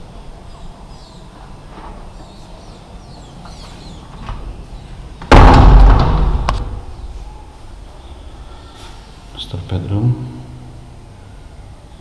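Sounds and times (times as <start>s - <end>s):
faint birds chirping: 0.0s - 5.3s, 6.6s - 12.0s
door clattering shut: 5.2s - 7.0s.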